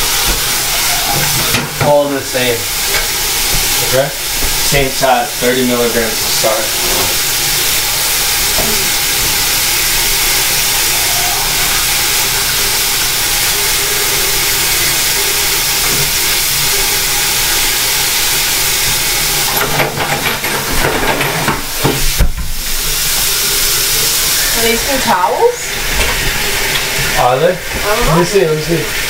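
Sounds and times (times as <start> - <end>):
tap running into sink: 0.0 - 7.8, 15.7 - 16.4, 18.8 - 23.3
clattering: 19.4 - 22.1.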